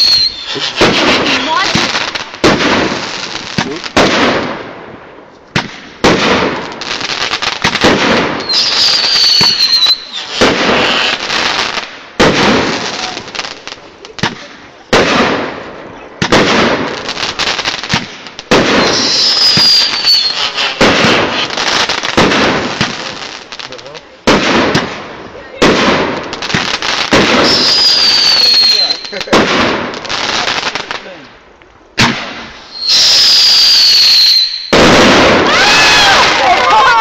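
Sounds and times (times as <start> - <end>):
firework whistle: 0.0 - 1.6, 8.4 - 11.5, 18.6 - 21.7, 27.4 - 29.2, 32.6 - 36.8
firework bangs: 0.0 - 31.2, 31.9 - 37.0
firework crackling: 0.0 - 37.0.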